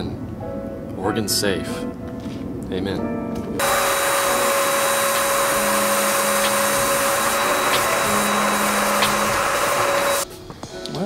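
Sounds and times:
sprayer whine: 3.6s - 10.2s
paint sprayer hissing: 3.6s - 10.3s.

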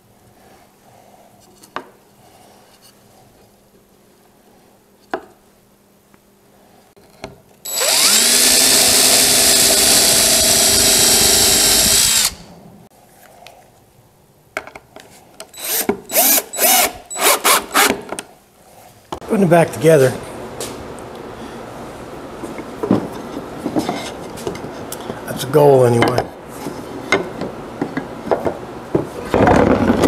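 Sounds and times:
cordless drill driving a screw: 7.7s - 12.5s, 15.6s - 18.0s.

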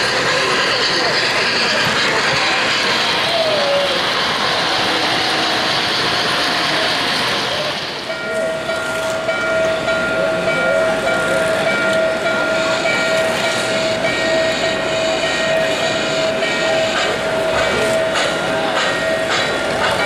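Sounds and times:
model train rolling on track: 0.0s - 20.0s
model locomotive whistle: 2.2s - 9.0s.

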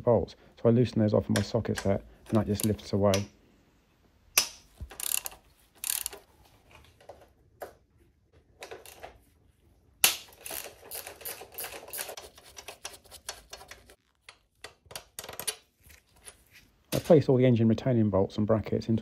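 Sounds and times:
socket ratchet clicking: 4.4s - 6.2s.

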